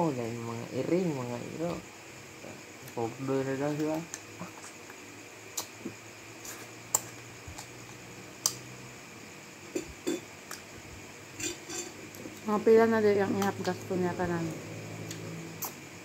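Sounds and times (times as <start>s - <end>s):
faint steady hum: 0.0s - 16.0s
plates and spoons clinking: 11.4s - 12.0s.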